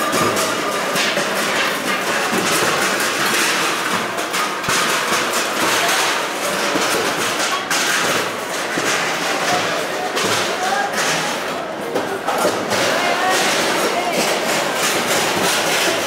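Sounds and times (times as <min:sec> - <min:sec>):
crowd din: 0:00.0 - 0:16.0
steel plates clattering: 0:00.0 - 0:16.0.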